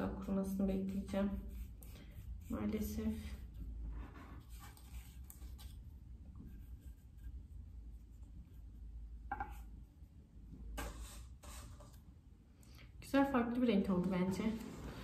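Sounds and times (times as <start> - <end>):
low room hum: 0.0 - 15.0
paintbrush strokes: 0.8 - 12.0.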